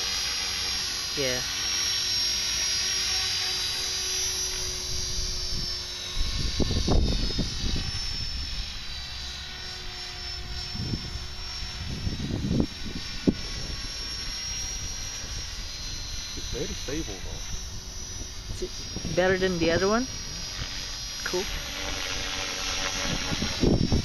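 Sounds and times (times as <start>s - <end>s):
rc helicopter motor whine: 0.0s - 24.0s
wind buffeting microphone: 4.8s - 8.9s, 10.4s - 24.0s.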